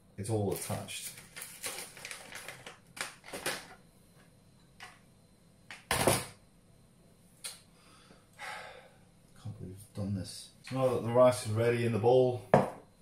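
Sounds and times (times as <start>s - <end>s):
plastic pouch crinkling: 0.5s - 3.7s.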